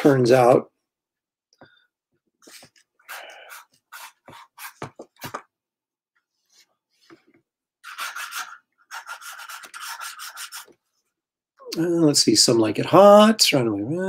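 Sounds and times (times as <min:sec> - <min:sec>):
pencil scratching on paper: 0:02.4 - 0:05.4, 0:07.8 - 0:10.8.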